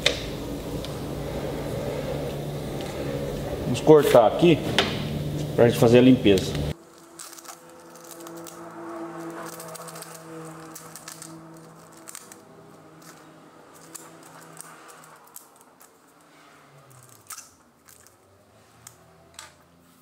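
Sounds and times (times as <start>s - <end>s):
low steady hum: 0.0s - 13.2s
plastic bag crinkling: 6.8s - 18.4s.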